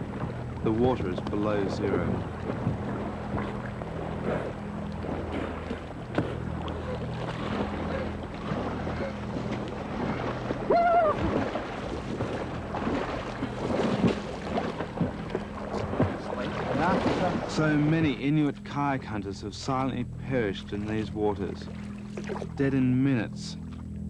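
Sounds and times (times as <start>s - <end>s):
low steady hum: 0.0s - 24.0s
water sloshing and splashing: 0.0s - 24.0s
short cry: 10.7s - 11.2s.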